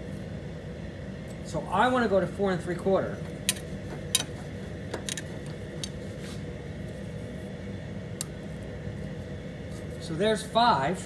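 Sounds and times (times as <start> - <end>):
steady low hum: 0.0 - 11.0
metallic clicks and taps: 3.4 - 6.0.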